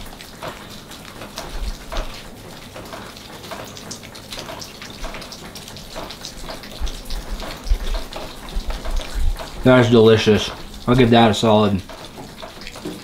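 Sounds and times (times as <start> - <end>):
grill sizzling and crackling: 0.0 - 13.0.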